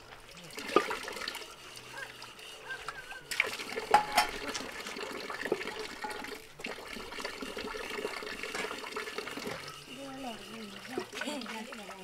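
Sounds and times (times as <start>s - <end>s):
water running from a tap: 0.4s - 12.0s
utensils knocking: 3.9s - 4.5s.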